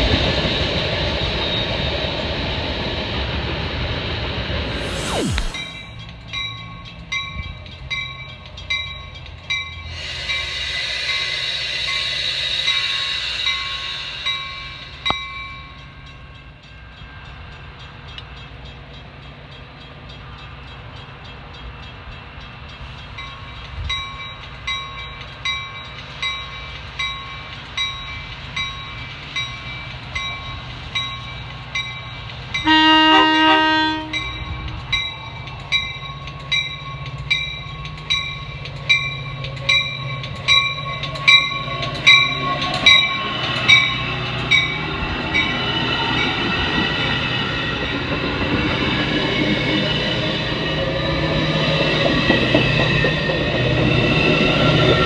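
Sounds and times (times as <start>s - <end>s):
rushing hiss: 4.5s - 6.0s, 9.8s - 15.4s
crossing bells ringing: 5.8s - 55.0s
train horn blast: 32.6s - 34.5s.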